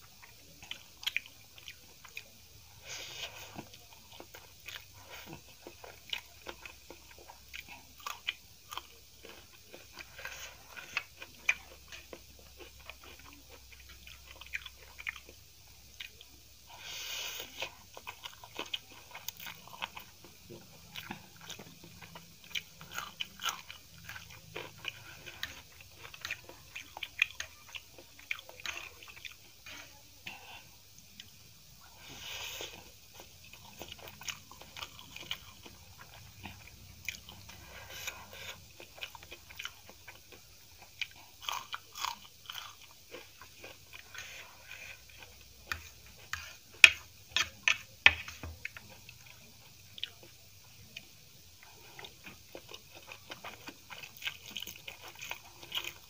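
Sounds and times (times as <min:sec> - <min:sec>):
wet chewing with smacks: 0:32.7 - 0:56.0.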